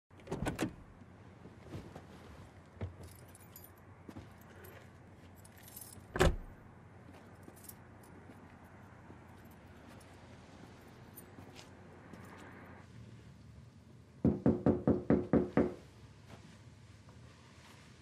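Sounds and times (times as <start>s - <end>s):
keys jangling: 3.0s - 3.8s, 5.4s - 6.5s.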